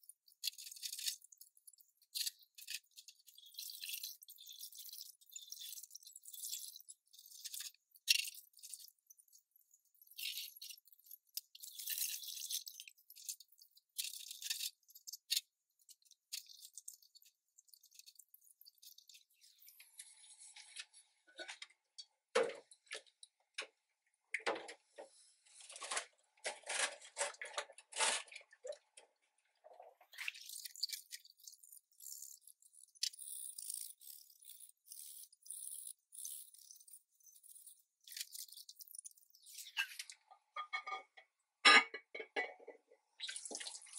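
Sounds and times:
dishes clinking against sink: 40.6 - 42.8.

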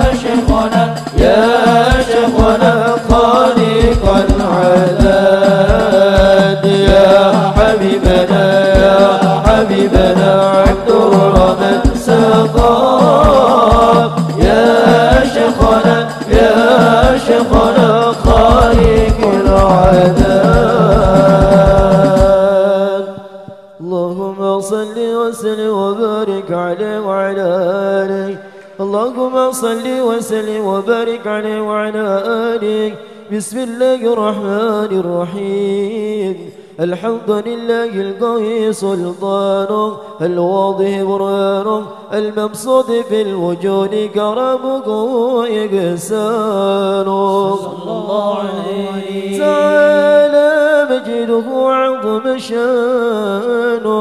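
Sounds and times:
low even beats: 0.0 - 22.5
man chanting melismatically: 0.0 - 54.0
men singing devotional song: 0.0 - 54.0.

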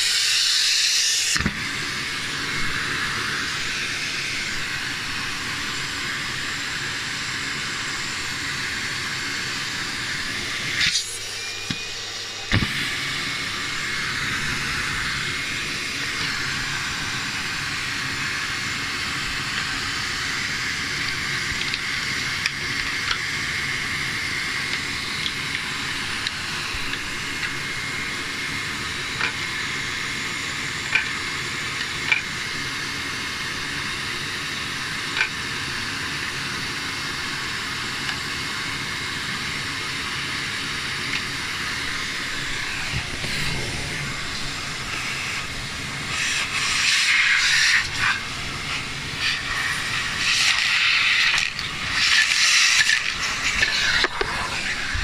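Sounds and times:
vacuum cleaner whistling suction: 0.0 - 55.0
small items clicking in hose: 49.2 - 54.6.

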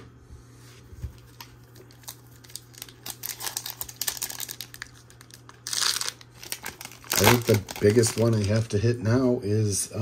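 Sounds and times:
foil wrapper crinkling: 1.2 - 9.0.

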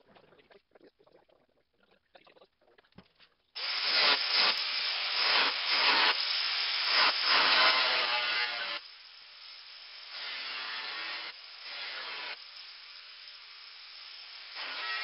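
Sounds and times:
angle grinder grinding metal: 6.8 - 8.8, 10.1 - 12.4, 14.5 - 15.0.

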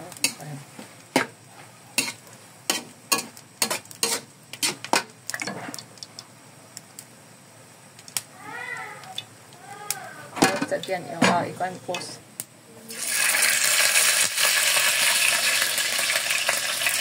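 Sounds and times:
metal spatula scraping a wok: 0.2 - 0.4, 2.0 - 5.1.

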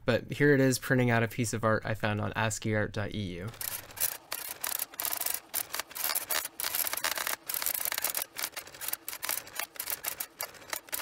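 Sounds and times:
typewriter printing: 3.5 - 11.0.

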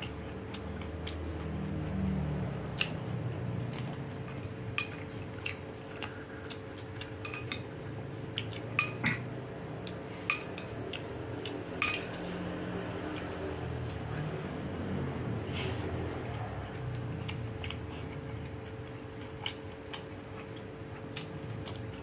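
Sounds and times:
metal spoon clinking on bowl: 7.2 - 7.6, 8.8 - 9.0, 11.8 - 12.2.

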